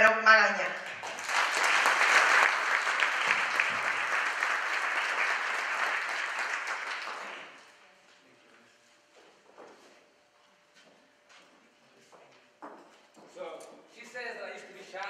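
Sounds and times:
audience applauding: 0.9 - 7.7.

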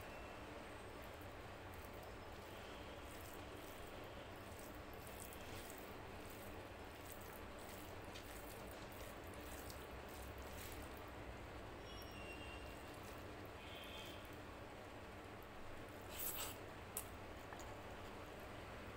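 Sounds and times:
wet squishing of rice kneaded: 0.0 - 18.5
low background hum: 0.0 - 18.9.

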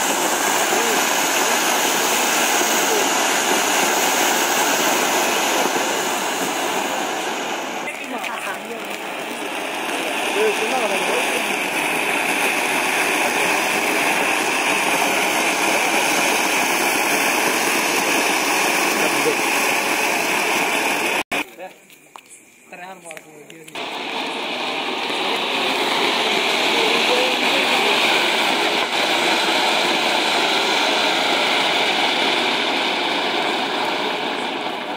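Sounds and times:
firework fountain hissing: 0.0 - 34.9.

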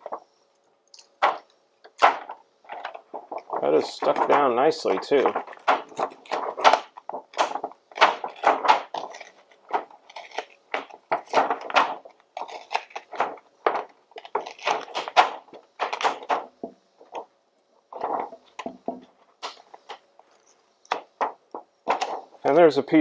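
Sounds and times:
plastic sheet crinkling: 0.0 - 0.3, 1.2 - 17.3, 17.9 - 22.6.

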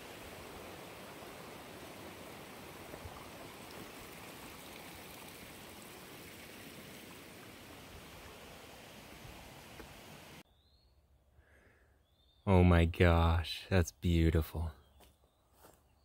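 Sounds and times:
stream rushing over stones: 0.0 - 10.4.

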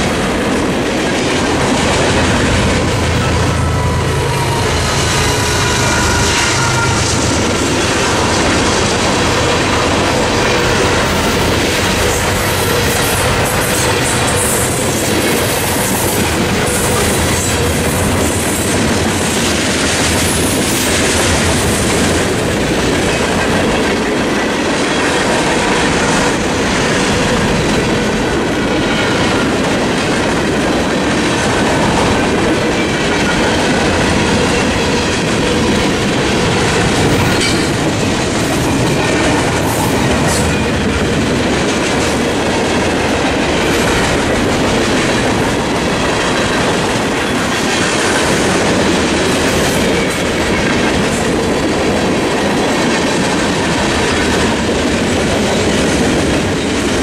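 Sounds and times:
diesel locomotive rumble: 0.0 - 24.1
freight train wheels on rails: 0.0 - 57.0.

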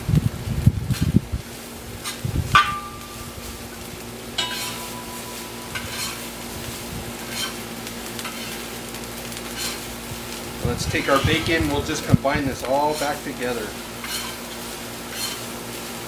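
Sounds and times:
food sizzling: 0.0 - 16.0
metal disc ringing: 2.5 - 3.6, 4.3 - 6.6
metal spatula scraping a pan: 4.4 - 8.7, 9.4 - 9.9, 10.9 - 12.1, 12.8 - 15.5.

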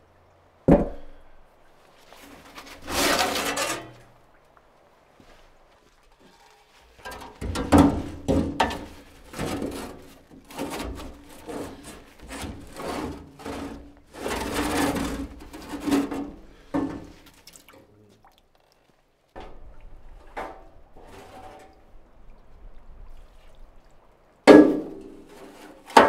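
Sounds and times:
metal scoop scraping ash: 2.2 - 4.1, 6.9 - 17.2.

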